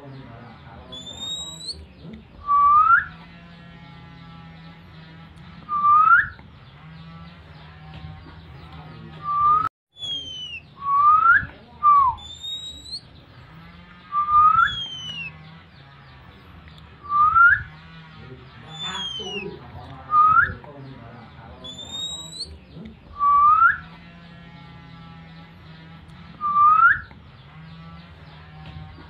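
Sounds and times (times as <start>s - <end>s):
bird rising whistle: 2.5s - 3.1s, 5.7s - 6.4s, 9.3s - 13.0s, 14.1s - 15.3s, 17.0s - 17.7s, 23.2s - 23.8s, 26.4s - 27.1s.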